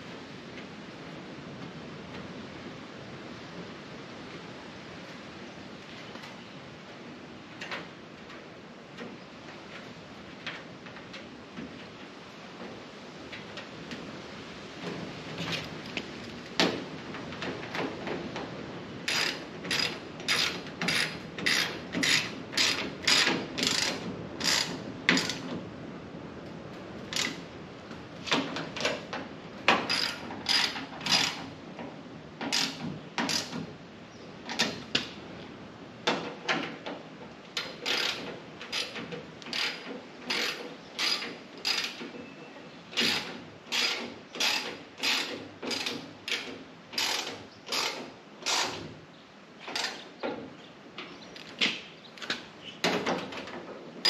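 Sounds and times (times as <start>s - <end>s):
hand ratchet clicking: 19.1s - 25.4s, 29.9s - 31.4s, 37.6s - 42.0s, 43.0s - 48.8s.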